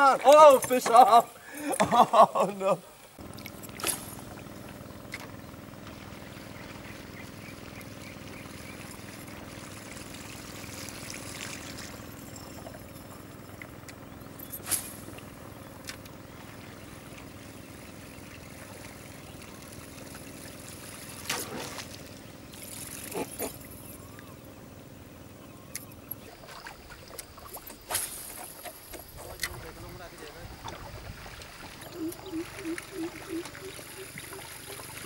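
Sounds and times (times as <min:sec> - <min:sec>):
steady low hum with hiss: 0:00.0 - 0:35.0
water splashing swishes: 0:05.8 - 0:13.7, 0:16.2 - 0:23.8, 0:26.2 - 0:35.0.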